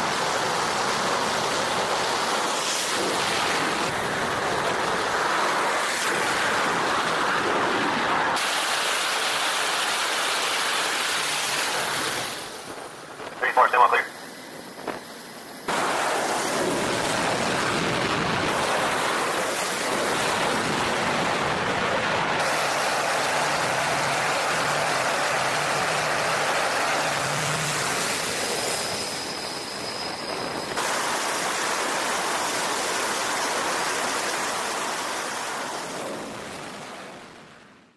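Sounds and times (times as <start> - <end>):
aircraft engines rushing: 0.0 - 37.6
faint high whine: 22.4 - 36.1.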